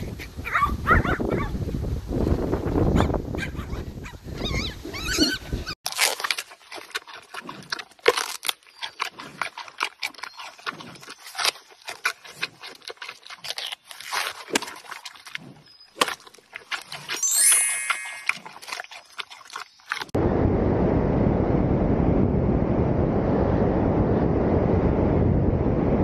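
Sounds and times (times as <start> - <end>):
dog whining and yipping: 3.5 - 5.8
panda chewing bamboo crunches: 5.8 - 17.2, 17.9 - 20.2.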